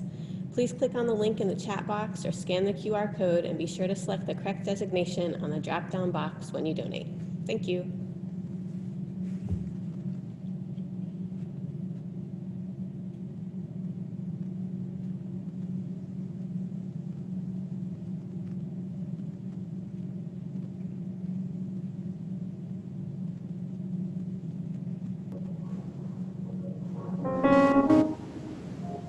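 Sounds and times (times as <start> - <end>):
steady low hum: 0.0 - 29.0
brief low thump: 9.4 - 9.8.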